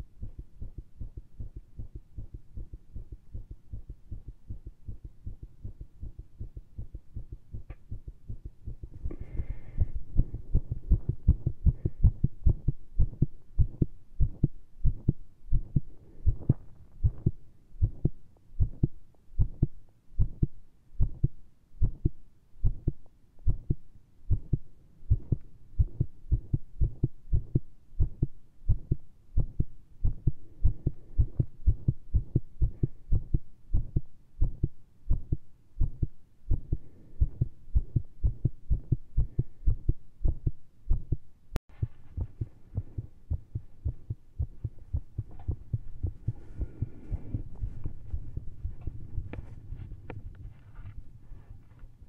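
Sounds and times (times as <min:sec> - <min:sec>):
fast heartbeat thumps: 0:00.0 - 0:51.1
faint scratchy noise: 0:41.7 - 0:52.0.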